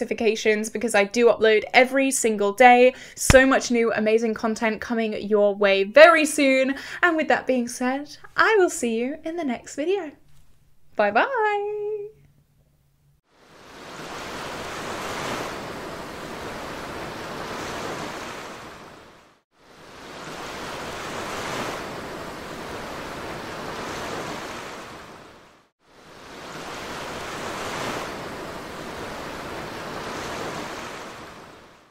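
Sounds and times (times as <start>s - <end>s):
waves breaking over rocks: 13.5s - 31.9s.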